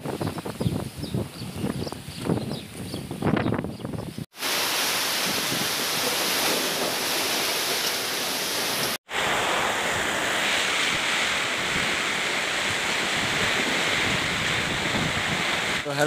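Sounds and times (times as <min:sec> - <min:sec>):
wind buffeting microphone: 0:00.0 - 0:04.3, 0:09.9 - 0:15.8
heavy rain on metal roof: 0:04.3 - 0:16.0.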